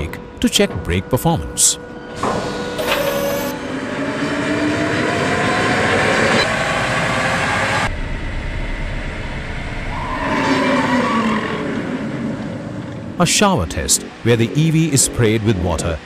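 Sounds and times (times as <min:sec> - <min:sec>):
rising whine of rollers: 0:00.0 - 0:16.0
low steady hum and rumble: 0:07.9 - 0:10.3.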